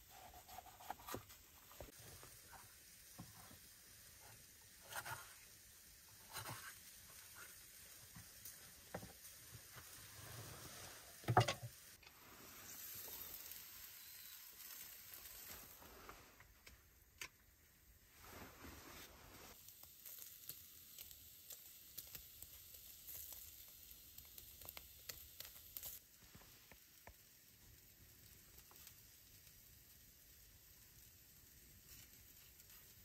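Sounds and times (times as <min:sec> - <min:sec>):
faint ticks and crackles: 0:19.5 - 0:33.0.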